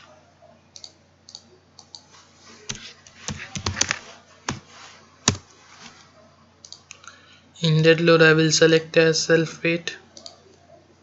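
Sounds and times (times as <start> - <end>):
keyboard typing: 2.7 - 4.6, 5.2 - 5.4
mouse clicks: 6.6 - 7.0, 10.2 - 10.4.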